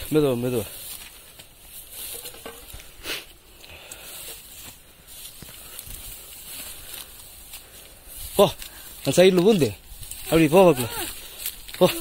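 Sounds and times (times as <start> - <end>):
footsteps on rock: 0.0 - 12.0
rustling dry brush: 0.0 - 12.0.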